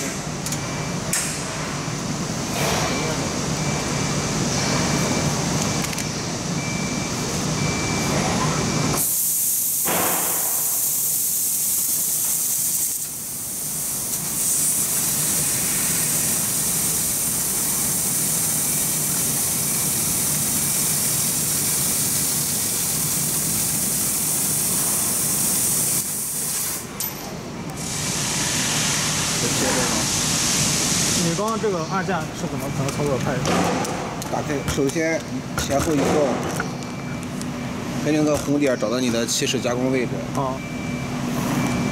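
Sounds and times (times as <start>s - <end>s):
gas hissing from cutting nozzle: 9.0s - 26.8s.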